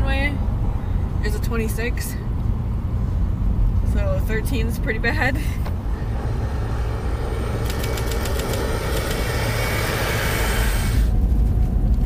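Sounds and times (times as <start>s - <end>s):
engine and tyre rumble: 0.0s - 12.0s
rushing hiss: 6.3s - 11.1s
quick ticks: 7.6s - 9.9s.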